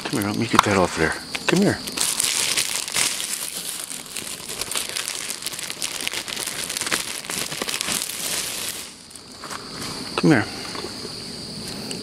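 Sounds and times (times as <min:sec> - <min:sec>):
plastic bag crinkling: 0:01.9 - 0:09.6.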